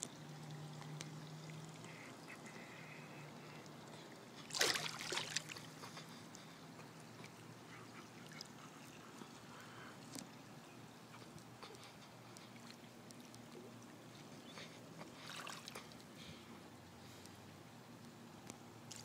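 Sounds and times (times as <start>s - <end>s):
low underwater hum: 0.0s - 19.0s
bubbling and splashing: 4.4s - 5.8s.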